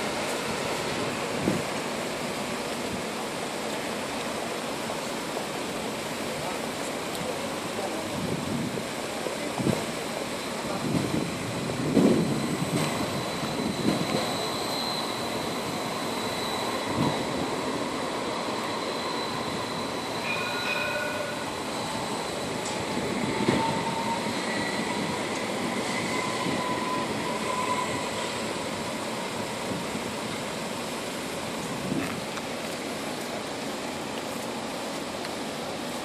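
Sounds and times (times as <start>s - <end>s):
tram rolling past: 0.0s - 36.0s
high thin squeals: 12.4s - 28.6s.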